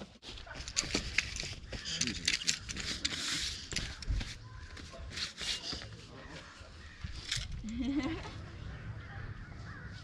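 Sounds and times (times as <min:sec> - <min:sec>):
camping gear clicks and scuffs: 0:00.0 - 0:06.5, 0:07.1 - 0:07.6.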